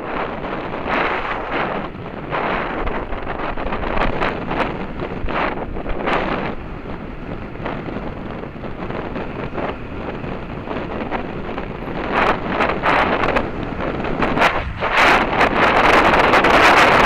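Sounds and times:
wind rushing over microphone: 0.0 - 17.0.

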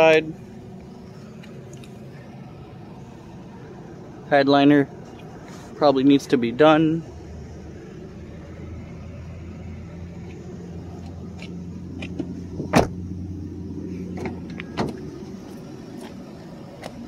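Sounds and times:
car door shutting: 11.0 - 13.0, 14.1 - 15.1.

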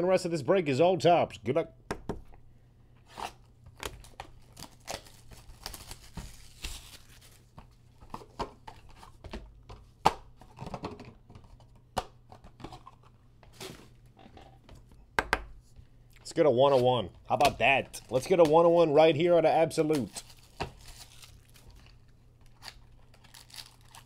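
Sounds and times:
seal tearing: 20.0 - 24.0.

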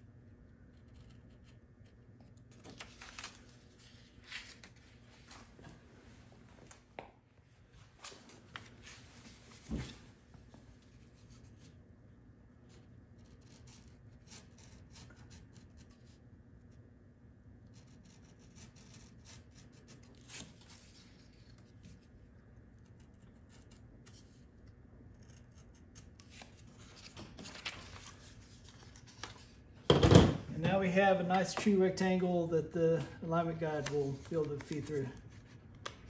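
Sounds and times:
blade slicing paper: 13.2 - 16.2, 17.7 - 22.0.

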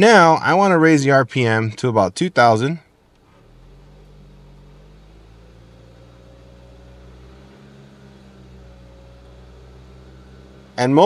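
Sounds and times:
car engine revving steadily: 2.2 - 11.0.

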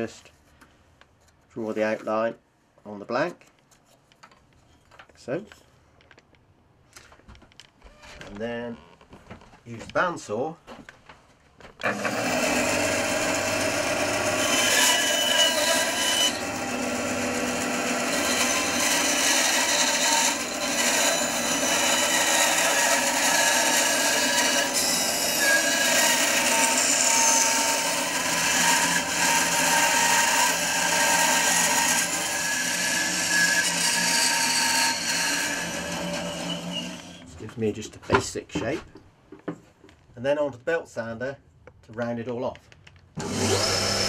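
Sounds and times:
bandsaw cutting wood: 11.8 - 37.3, 43.2 - 44.0.

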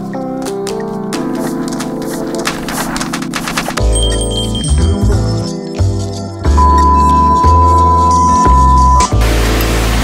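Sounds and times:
synthesizer chords: 1.2 - 10.0.

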